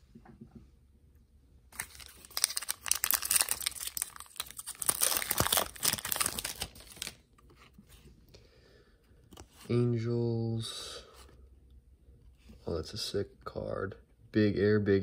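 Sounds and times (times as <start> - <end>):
foil wrapper tearing and crinkling: 1.8 - 7.2.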